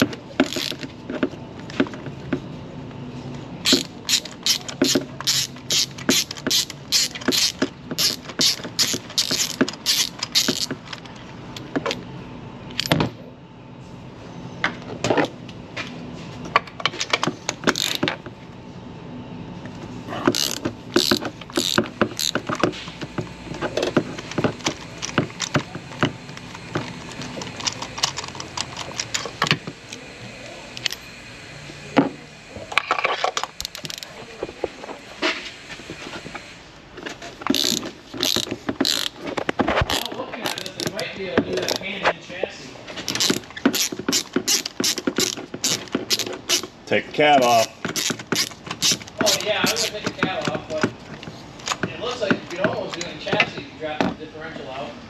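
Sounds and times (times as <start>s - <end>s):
hand ratchet clicking: 0.0s - 0.9s, 3.6s - 11.1s, 17.5s - 18.1s, 20.3s - 22.7s, 23.9s - 29.4s, 33.6s - 34.1s, 37.4s - 41.8s, 43.1s - 46.7s, 47.4s - 50.6s.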